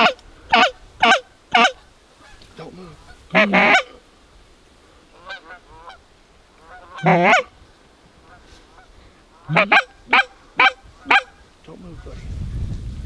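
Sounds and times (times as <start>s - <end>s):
geese honking: 0.0s - 4.0s, 5.1s - 7.6s, 8.2s - 12.1s.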